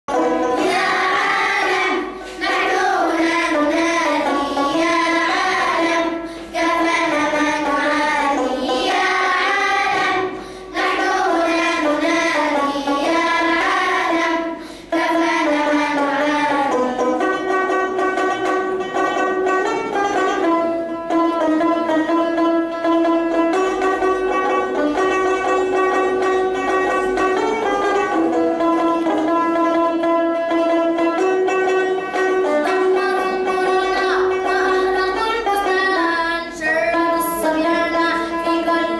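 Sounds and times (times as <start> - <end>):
children's choir singing in unison: 0.1 - 18.7, 31.8 - 38.9
instrumental accompaniment: 0.1 - 38.9.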